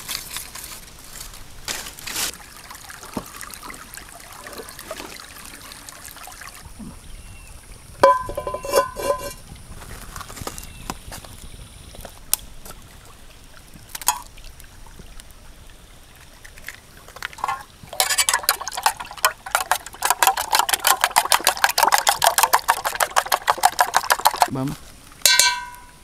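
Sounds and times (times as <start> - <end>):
spoon clinking in metal pot: 8.0 - 9.4, 17.4 - 20.5, 25.3 - 26.0.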